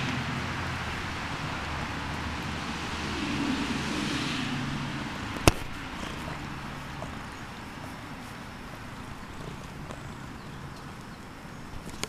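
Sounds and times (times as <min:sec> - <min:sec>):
cat purring: 0:05.7 - 0:08.2, 0:08.8 - 0:10.5.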